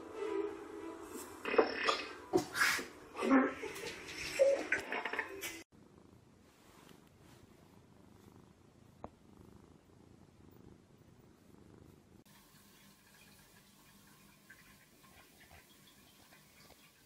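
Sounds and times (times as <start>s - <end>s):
cat purring: 5.7s - 12.3s.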